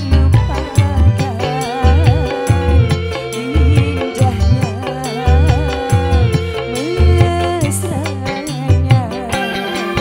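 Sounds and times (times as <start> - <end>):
electric bass: 0.0 - 10.0
guitar: 0.0 - 10.0
wavering melody: 0.0 - 10.0.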